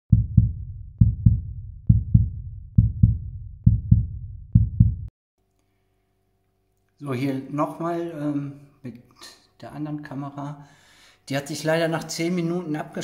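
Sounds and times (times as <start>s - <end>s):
deep heartbeat thumps: 0.1s - 5.1s.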